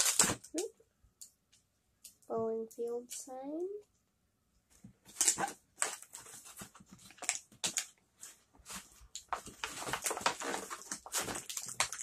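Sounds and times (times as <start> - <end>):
plastic tray crinkling: 8.7 - 12.0.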